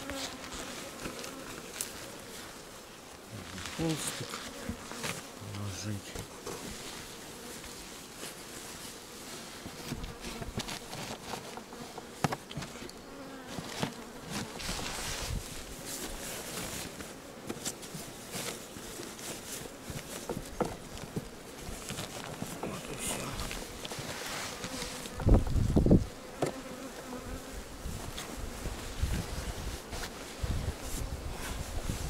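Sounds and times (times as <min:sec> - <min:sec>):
honeybees buzzing: 0:00.0 - 0:32.0
sharp knocks on beehive: 0:26.4 - 0:26.7.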